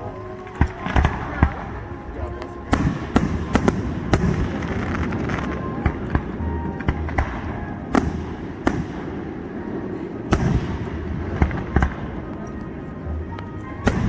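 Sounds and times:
fireworks bangs: 0.5s - 1.8s, 2.6s - 12.5s, 13.8s - 14.0s.

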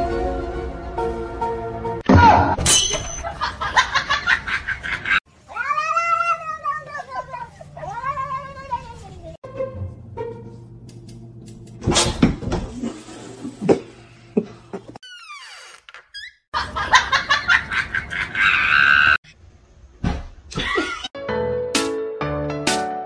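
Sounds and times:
people laughing: 3.2s - 5.2s, 16.6s - 19.1s.

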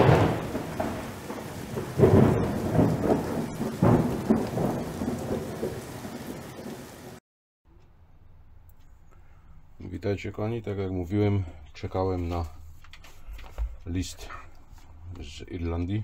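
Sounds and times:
steady rain: 0.0s - 7.2s
thunder rolling: 0.0s - 7.2s.

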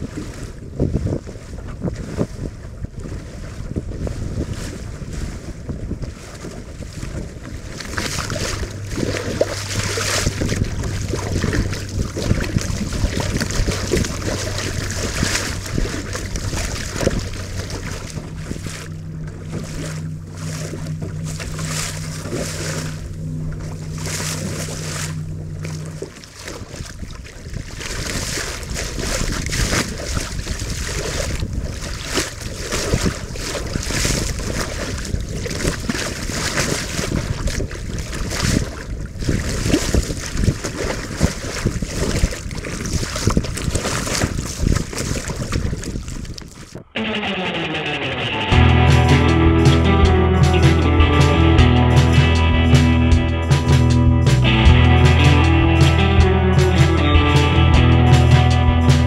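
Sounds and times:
wind buffeting microphone: 0.0s - 47.0s
water rushing and splashing: 0.0s - 59.0s
low steady hum: 6.7s - 27.3s.

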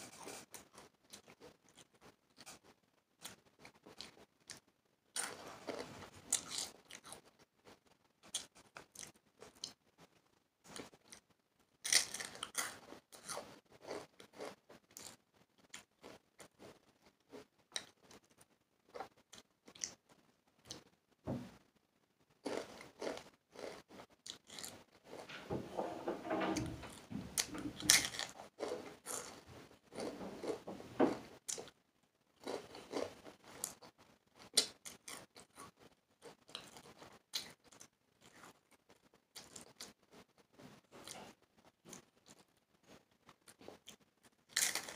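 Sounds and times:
tortilla chips crunching: 11.8s - 15.1s, 27.8s - 29.4s, 44.5s - 44.9s.

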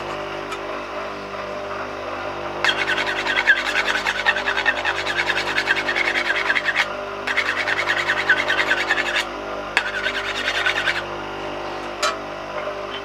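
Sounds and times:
bench grinder motor humming: 0.0s - 12.0s
metal grinding rasp: 2.6s - 11.1s.

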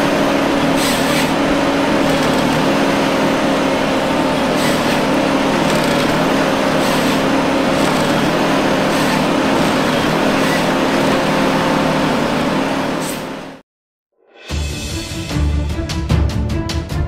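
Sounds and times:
diesel engine and hydraulics running: 0.0s - 13.6s
whining tones: 0.0s - 13.6s.

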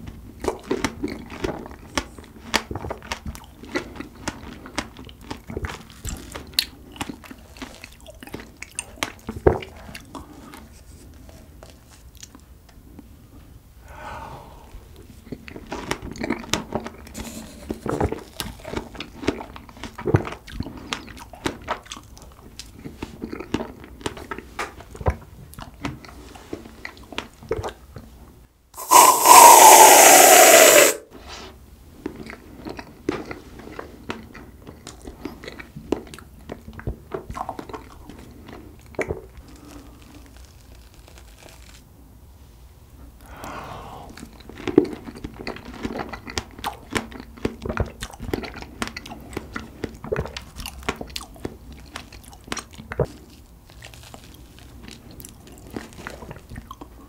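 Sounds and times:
aerosol can spraying hiss: 28.8s - 31.0s
mouth clicks and smacks: 28.8s - 31.0s
wet chewing and biting: 44.1s - 57.0s.

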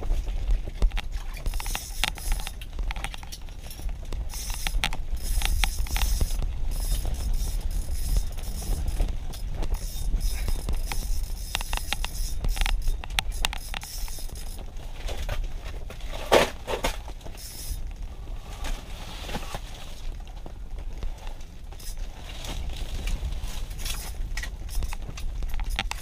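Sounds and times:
fishing reel clicks and scrapes: 0.9s - 15.3s, 17.3s - 17.8s, 21.8s - 22.1s, 23.0s - 26.0s.

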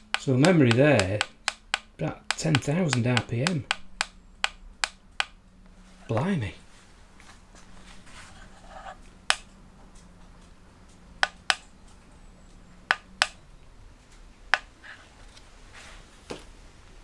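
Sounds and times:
sharp clicks: 0.0s - 5.4s, 10.8s - 12.0s, 12.9s - 13.4s.

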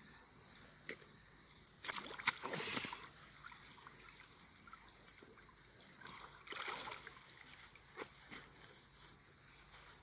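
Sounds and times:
water splashing and sloshing: 0.9s - 9.0s
water trickling: 1.9s - 8.0s.

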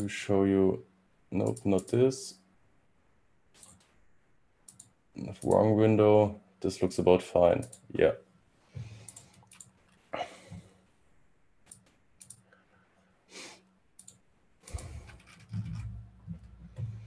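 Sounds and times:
computer mouse clicks: 1.4s - 2.0s, 3.6s - 4.0s, 4.6s - 5.6s, 7.6s - 7.9s, 8.8s - 10.1s, 11.7s - 12.6s, 14.0s - 16.9s
keyboard clicks: 1.4s - 2.0s, 3.6s - 4.0s, 4.6s - 5.6s, 7.6s - 7.9s, 8.8s - 10.7s, 11.7s - 12.5s, 14.0s - 16.9s
breaths: 8.6s - 9.5s, 10.1s - 10.8s, 12.4s - 13.8s.

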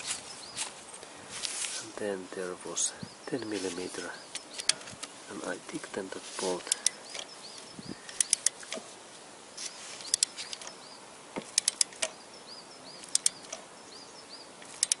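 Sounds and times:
torque wrench ratchet clicking: 11.6s - 12.0s, 13.1s - 13.4s, 14.8s - 15.0s.

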